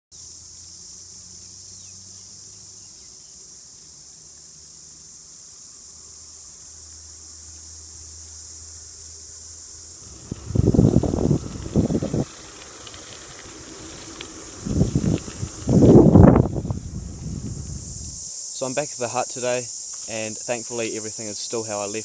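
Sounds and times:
cicadas singing: 0.1s - 22.0s.

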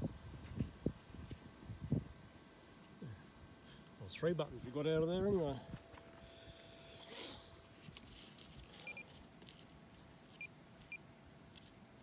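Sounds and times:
soil rustling: 7.6s - 12.0s
metal detector beeps: 8.8s - 9.1s.

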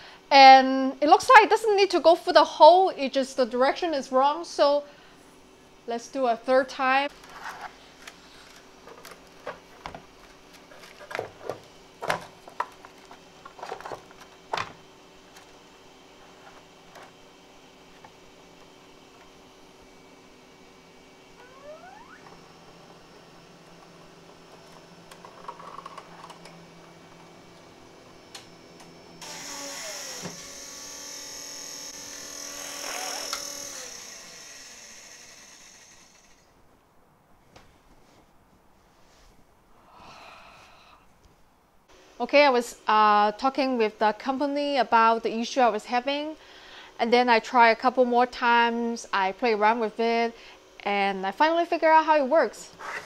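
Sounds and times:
faint steady hum: 0.0s - 53.0s
stepper motor whining: 21.3s - 36.5s.

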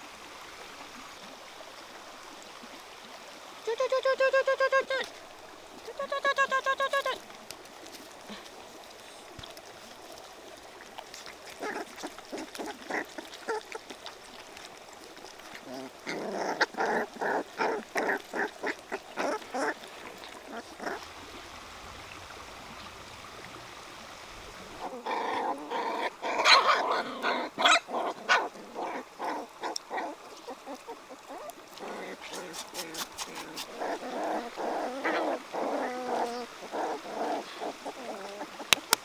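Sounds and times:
puppies growling and whimpering: 11.6s - 13.8s, 15.5s - 21.1s, 24.8s - 38.9s.

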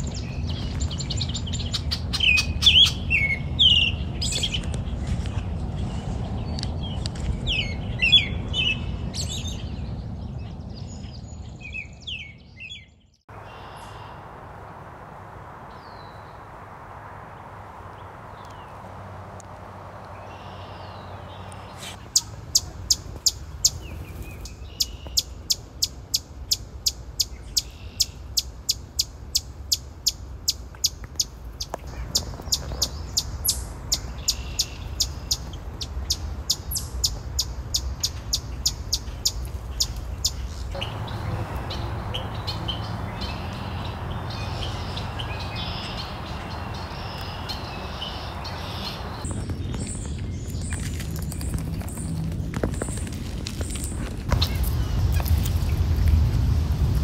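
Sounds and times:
chipmunk chip calls: 20.3s - 49.2s.

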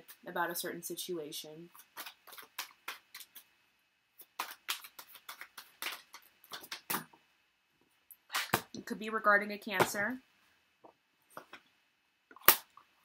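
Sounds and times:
cards being shuffled: 1.7s - 3.5s, 4.2s - 7.2s.

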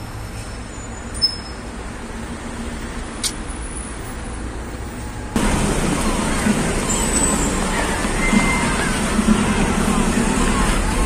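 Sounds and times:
street traffic: 0.0s - 11.0s
sharp click: 3.2s - 3.4s.

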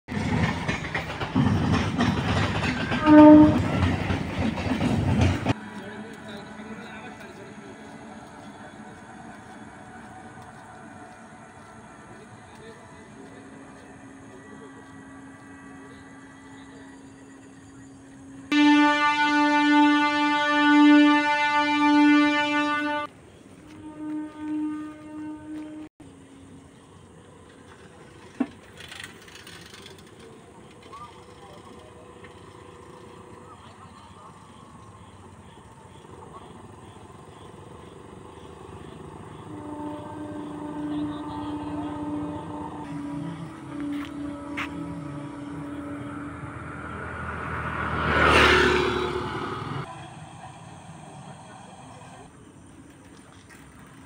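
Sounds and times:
train rumbling and clattering: 0.1s - 18.5s, 20.9s - 54.0s
train horn blast: 2.9s - 3.9s, 18.4s - 25.9s, 38.9s - 49.9s.

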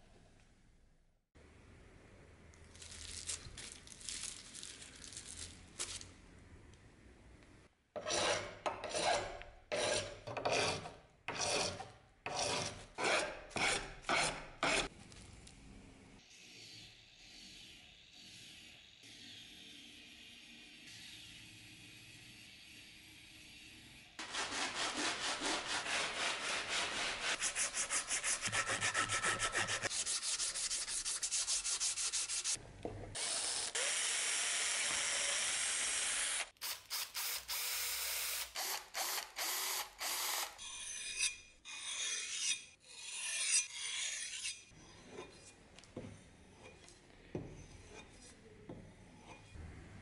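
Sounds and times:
scraping strokes on metal: 8.0s - 14.9s, 16.2s - 32.6s, 40.6s - 49.6s.

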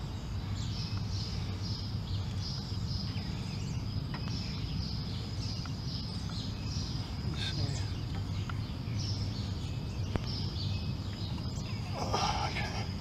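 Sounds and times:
faint bird chirps: 0.0s - 13.0s
insect drone: 0.0s - 13.0s.

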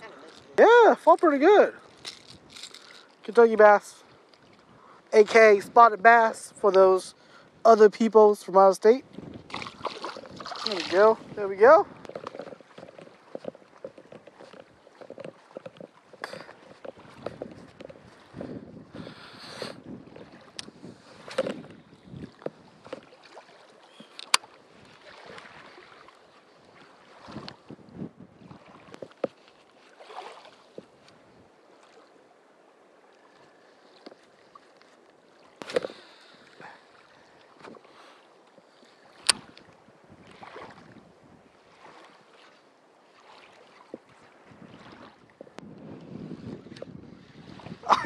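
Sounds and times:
wind buffeting microphone: 0.0s - 23.2s, 26.6s - 29.3s, 39.2s - 41.6s, 43.9s - 48.0s.

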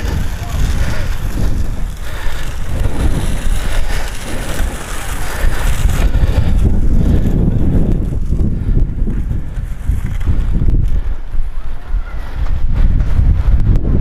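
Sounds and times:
drag mat scraping clay: 0.0s - 11.3s
wind buffeting microphone: 0.0s - 14.0s.

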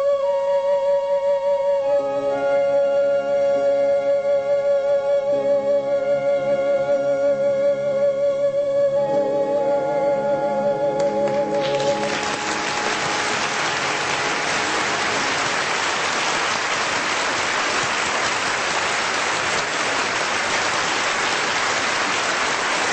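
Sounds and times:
orchestra playing: 9.6s - 22.9s
audience applause: 11.2s - 22.9s.

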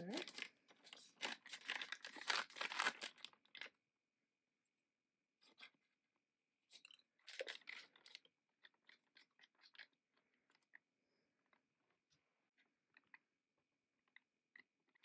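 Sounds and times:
plastic pouch crinkling: 0.0s - 3.7s.

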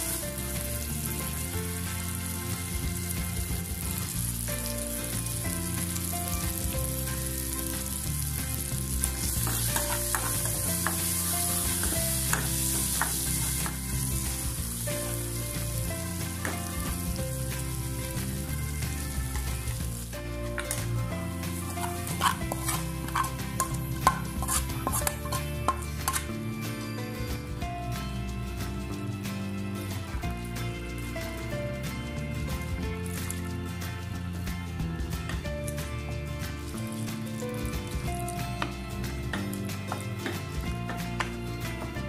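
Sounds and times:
vegetables sizzling in oil: 0.0s - 26.6s, 36.3s - 38.6s
steel spoon scraping a pan: 9.2s - 13.8s, 21.5s - 26.3s.

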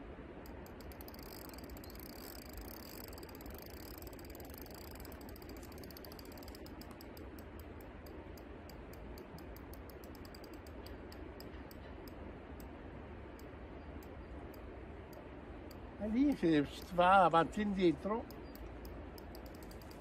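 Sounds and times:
steady low hiss: 0.0s - 20.0s
fishing reel drag clicking: 0.4s - 11.5s, 18.2s - 20.0s.

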